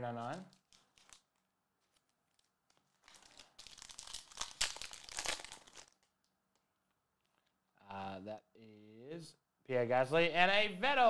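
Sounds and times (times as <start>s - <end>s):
foil wrapper tearing and crinkling: 0.5s - 6.1s.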